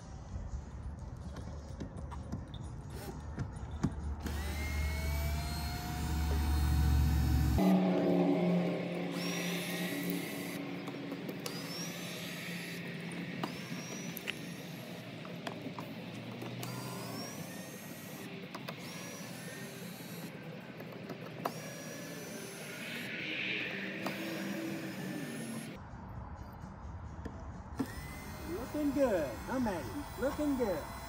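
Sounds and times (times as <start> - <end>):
cordless drill whining: 4.2 - 7.7, 9.2 - 23.1, 23.8 - 25.8, 27.8 - 31.0.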